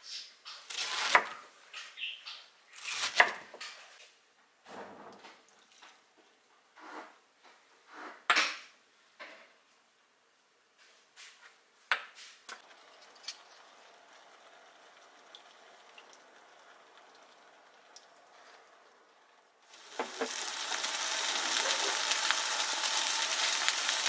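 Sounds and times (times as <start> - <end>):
mushrooms simmering with bubbling: 12.6 - 24.0.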